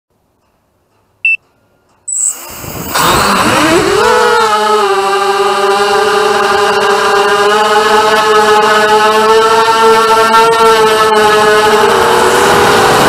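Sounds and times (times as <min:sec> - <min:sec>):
short electronic beep: 0:02.1 - 0:02.5.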